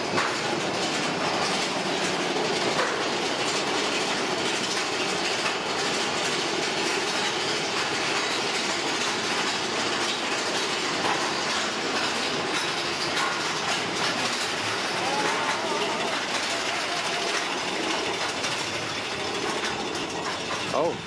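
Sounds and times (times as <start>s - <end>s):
roller coaster rattling on track: 0.0s - 21.0s.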